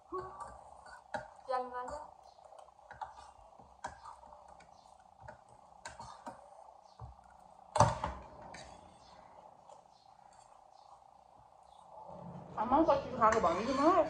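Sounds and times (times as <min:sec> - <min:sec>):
utensils scraping against plates: 0:13.2 - 0:14.0.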